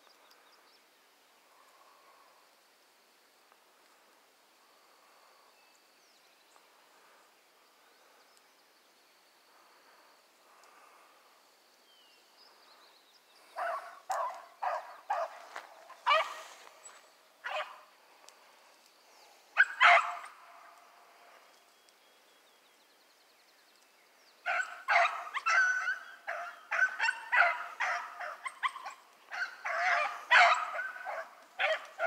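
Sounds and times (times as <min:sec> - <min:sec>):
faint outdoor background: 0:00.0 - 0:32.0
hounds barking: 0:13.5 - 0:17.9, 0:19.6 - 0:20.8, 0:24.4 - 0:32.0.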